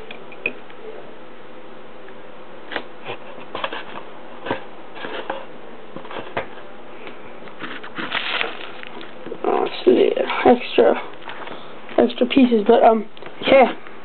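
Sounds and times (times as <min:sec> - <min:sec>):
plastic parts clicking and rustling: 0:07.6 - 0:09.1.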